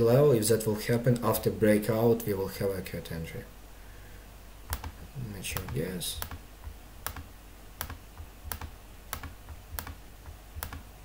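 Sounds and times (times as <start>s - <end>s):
faint low hum: 0.0s - 11.0s
computer mouse clicks: 4.7s - 10.9s.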